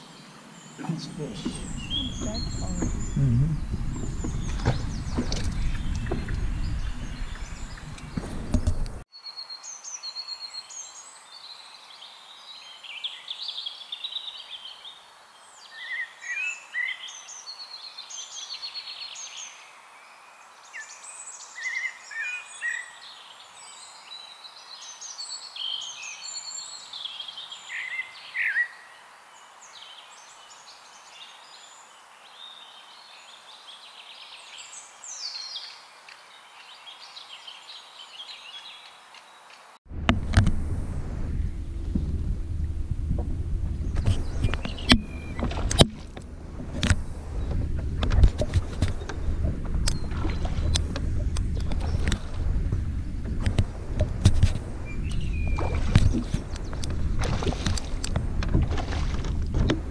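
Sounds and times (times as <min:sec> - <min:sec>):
songbirds singing and chirping: 0:00.0 - 0:39.8, 0:41.2 - 0:59.9
faint steady hiss: 0:00.0 - 0:59.9
low rumbling noise: 0:00.8 - 0:09.0, 0:39.9 - 0:59.9.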